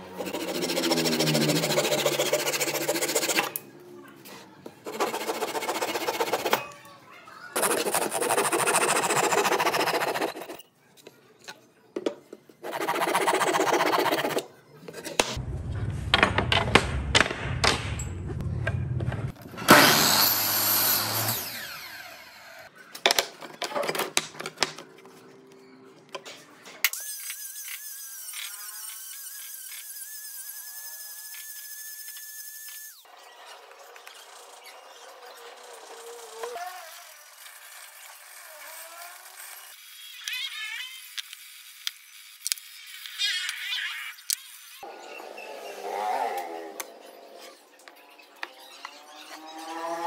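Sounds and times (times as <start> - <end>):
angle grinder whining: 0.0 - 2.6, 19.5 - 22.7
pull saw cutting wood: 0.1 - 3.6, 4.9 - 6.6, 7.6 - 10.6.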